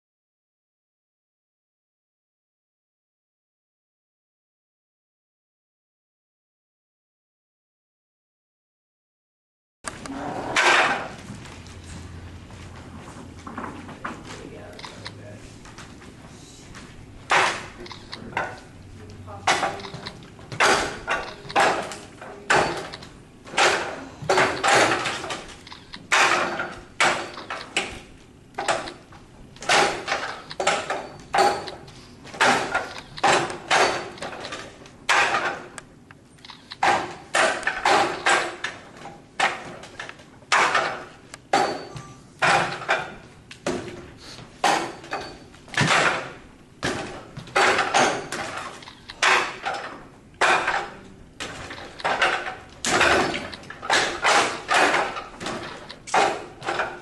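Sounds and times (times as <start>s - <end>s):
sharp wooden knocks: 17.3s - 18.7s, 20.4s - 28.0s, 29.6s - 34.5s, 35.1s - 35.8s, 36.8s - 39.9s, 40.5s - 44.0s, 44.6s - 57.0s.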